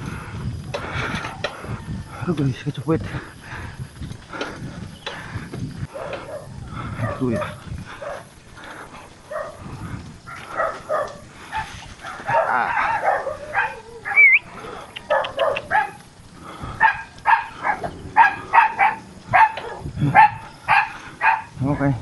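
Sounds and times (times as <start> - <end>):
dog barking: 5.9 - 8.3, 9.3 - 9.6, 10.3 - 14.2, 15.0 - 16.0, 16.8 - 21.5.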